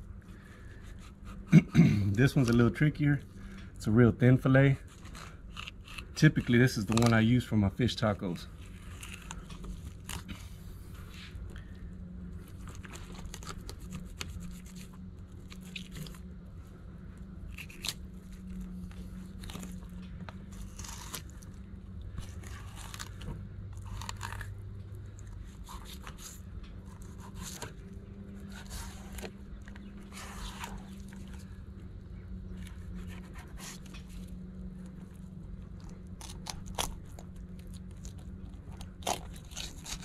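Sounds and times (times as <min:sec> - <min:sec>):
steady low hum: 0:00.0 - 0:40.0
knife crunching over fish bones: 0:04.9 - 0:07.2, 0:17.5 - 0:21.6, 0:22.2 - 0:24.6, 0:35.7 - 0:40.0.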